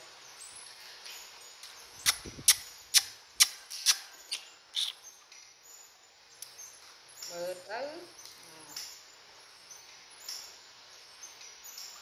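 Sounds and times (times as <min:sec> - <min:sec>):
wet sucking clicks: 0:02.0 - 0:05.0.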